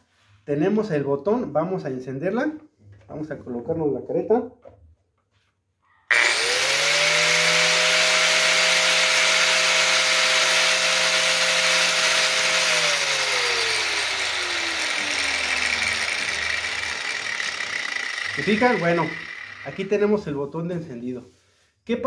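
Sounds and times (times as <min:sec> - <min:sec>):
angle grinder motor whining: 0:06.1 - 0:20.1.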